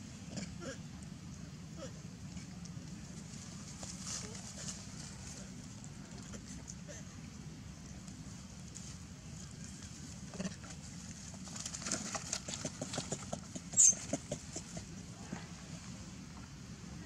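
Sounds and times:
dry leaves crackling and rustling: 3.1 - 5.9, 10.8 - 12.9.

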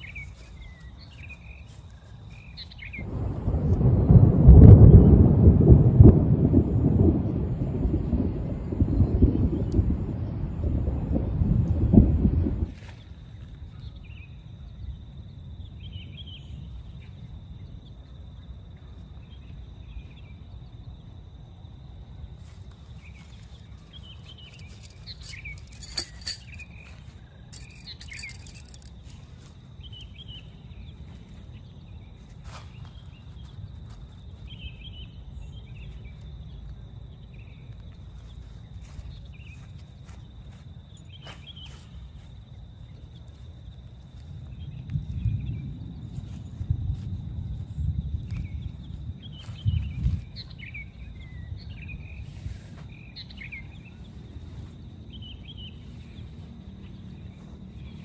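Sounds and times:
forest birds chirping: 0.0 - 3.1, 22.4 - 58.0
low rumble: 2.9 - 12.7
handling noise with sharp clicks: 24.3 - 27.0, 27.6 - 29.3.

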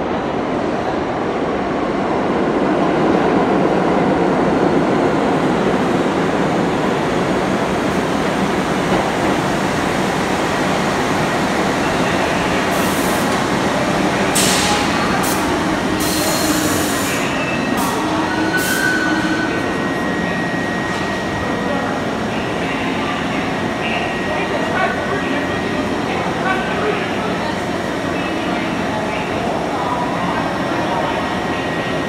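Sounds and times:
subway train rumble: 0.0 - 32.0
train brakes hissing and squealing: 14.4 - 21.9.

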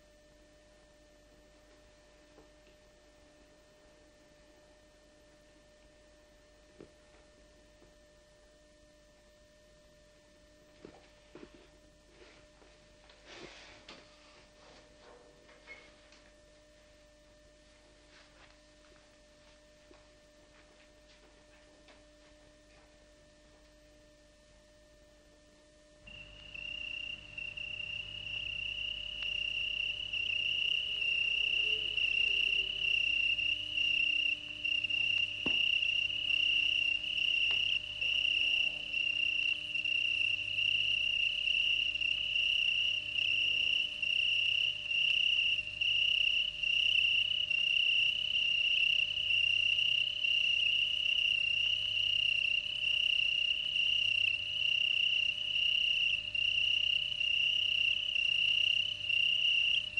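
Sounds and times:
cricket trilling: 26.1 - 59.9.

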